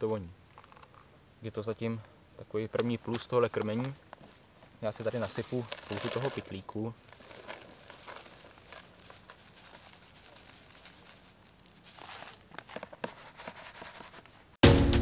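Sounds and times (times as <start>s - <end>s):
crumbly feed crackling: 2.8s - 13.0s
plastic bag crinkling: 4.8s - 14.3s.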